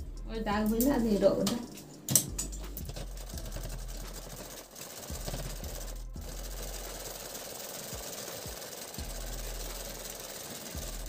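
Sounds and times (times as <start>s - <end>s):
sewing machine stitching: 2.8s - 11.0s.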